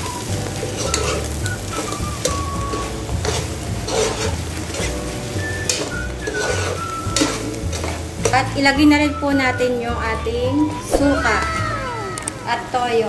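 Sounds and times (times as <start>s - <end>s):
background music: 0.0s - 13.0s
food sizzling: 0.0s - 13.0s
metal spatula scraping pot: 0.6s - 8.7s.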